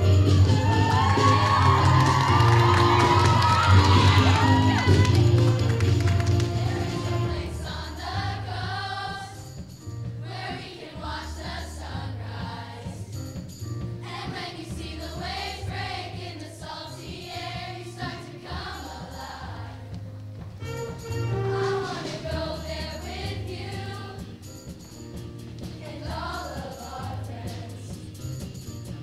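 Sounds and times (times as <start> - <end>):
instrumental accompaniment: 0.0 - 29.0
choir singing in unison: 6.4 - 9.6, 10.2 - 13.0, 14.0 - 19.9, 21.4 - 24.3, 25.8 - 28.0.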